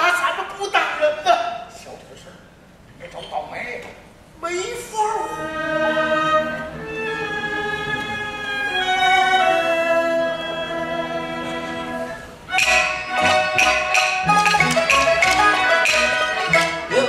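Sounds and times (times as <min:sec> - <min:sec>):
bowed strings slow melody: 0:05.2 - 0:17.0
sharp percussive strikes: 0:12.5 - 0:17.0.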